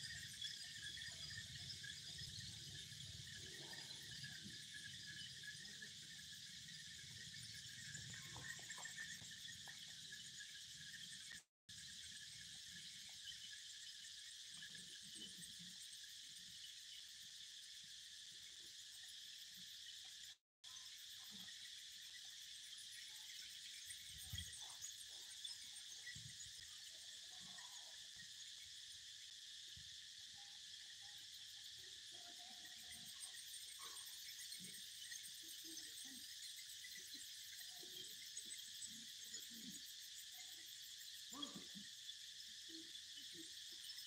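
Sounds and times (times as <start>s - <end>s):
insects chirring: 0.0s - 44.0s.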